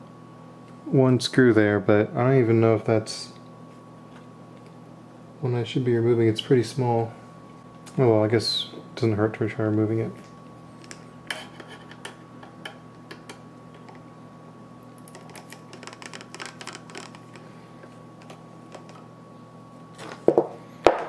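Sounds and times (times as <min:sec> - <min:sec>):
faint hum: 0:00.0 - 0:21.0.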